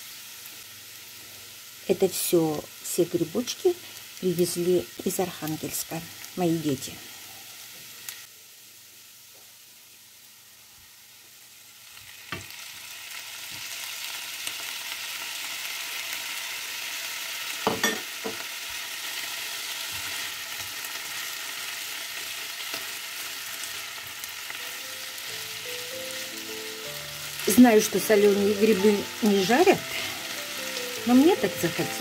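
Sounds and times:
potatoes sizzling in a pan: 0.0s - 32.0s.

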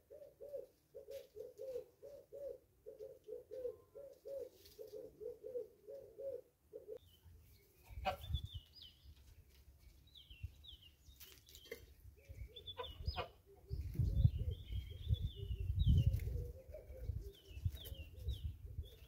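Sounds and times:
dove cooing: 0.0s - 7.0s, 12.2s - 19.0s
small birds chirping: 6.8s - 19.0s.

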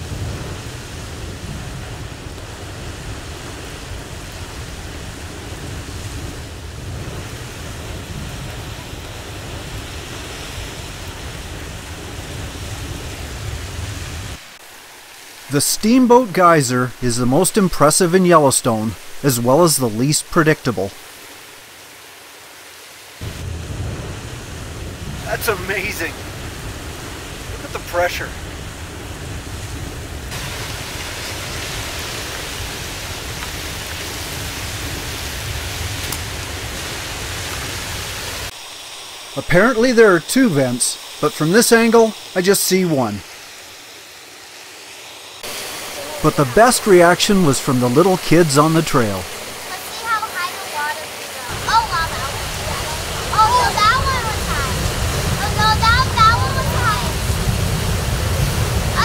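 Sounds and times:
geyser rushing water and steam: 0.0s - 59.0s.

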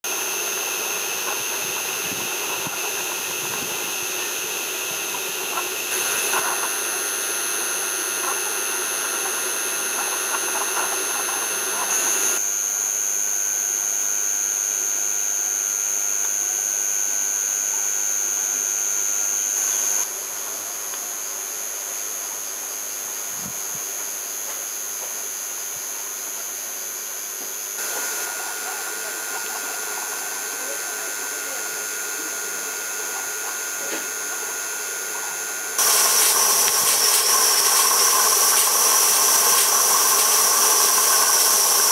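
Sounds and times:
model steam locomotive hissing: 0.1s - 12.4s, 27.8s - 41.9s.

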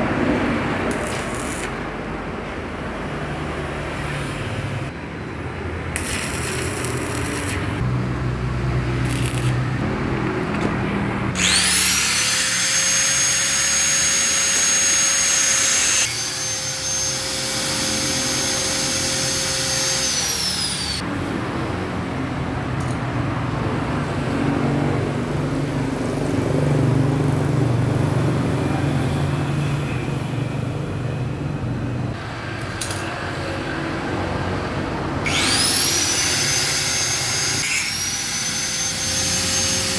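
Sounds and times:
workshop noise: 0.0s - 39.9s
arc welding crackle: 0.8s - 1.9s, 5.9s - 7.9s, 8.9s - 9.8s
angle grinder whine: 6.0s - 7.9s, 11.3s - 21.1s, 35.2s - 39.9s.

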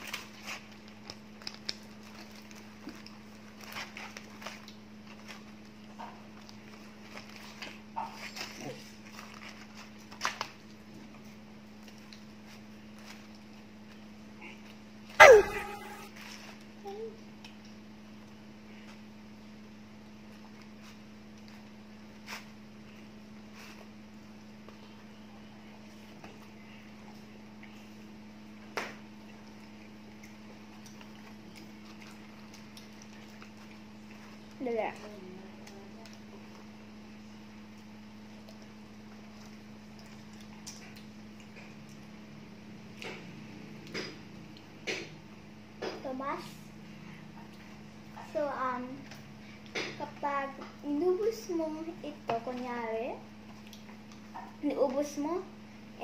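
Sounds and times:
steady hum: 0.0s - 56.0s.

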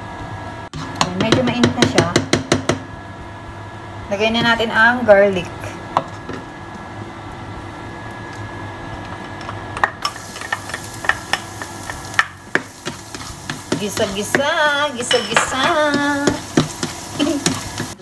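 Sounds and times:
steady hum: 0.0s - 18.0s
garlic sizzling in oil: 10.0s - 18.0s
spatula scraping pan: 10.3s - 18.0s.

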